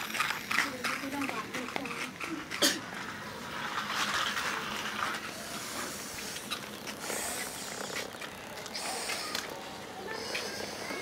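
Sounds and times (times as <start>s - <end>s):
small electric motor whirring: 3.6s - 11.0s.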